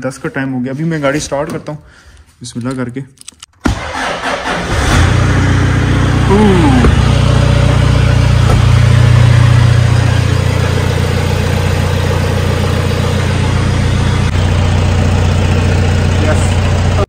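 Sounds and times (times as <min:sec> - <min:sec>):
diesel engine idling: 0:05.0 - 0:17.0.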